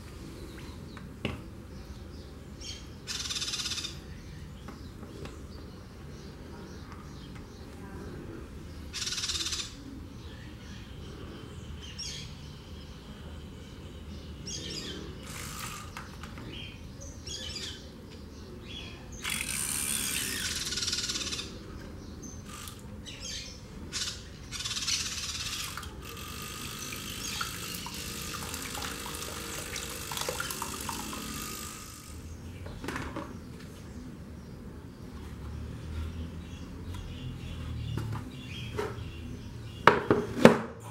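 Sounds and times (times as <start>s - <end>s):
small motor whirring: 15.2s - 16.1s, 19.2s - 21.5s, 22.4s - 22.8s, 25.2s - 32.3s
water churning and splashing: 26.8s - 31.3s.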